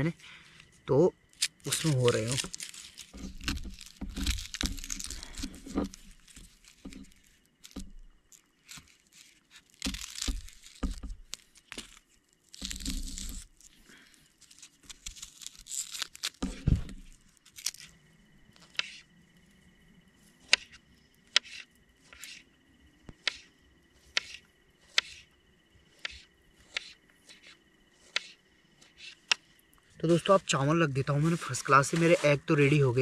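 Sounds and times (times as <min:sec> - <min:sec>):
onion skins crackling: 0:00.0 - 0:19.0, 0:25.9 - 0:33.0.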